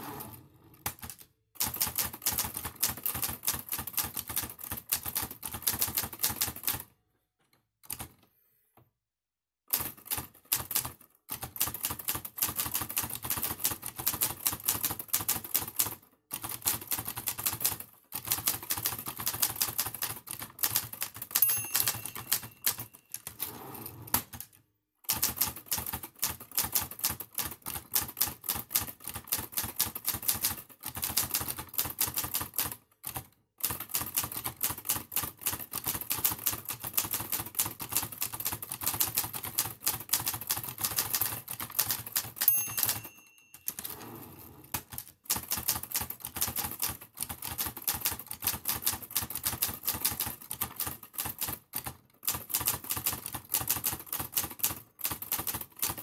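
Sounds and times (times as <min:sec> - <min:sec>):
typewriter keys clacking: 0:09.8 - 0:23.5, 0:25.1 - 0:56.0
typewriter bell ringing: 0:21.3 - 0:23.4, 0:42.4 - 0:44.5.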